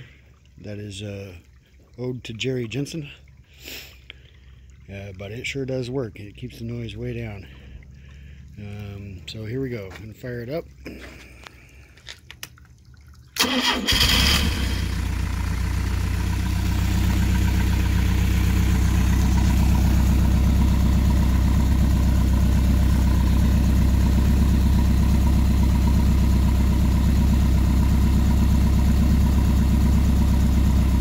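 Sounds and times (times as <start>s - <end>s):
boat engine starting and idling: 0.0s - 31.0s.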